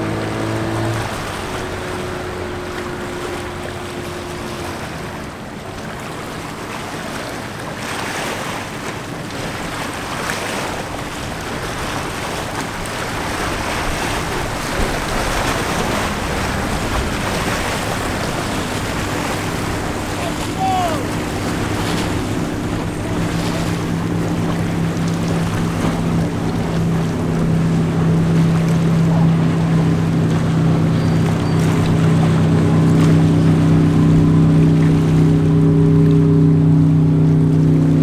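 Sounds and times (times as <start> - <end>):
motorboat engine running: 0.0 - 38.0
wake and waves washing: 0.0 - 38.0
wind on microphone: 10.7 - 38.0.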